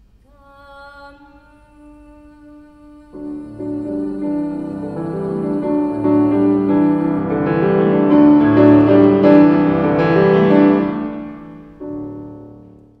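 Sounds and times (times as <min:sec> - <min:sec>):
grand piano chords: 0:03.1 - 0:13.0.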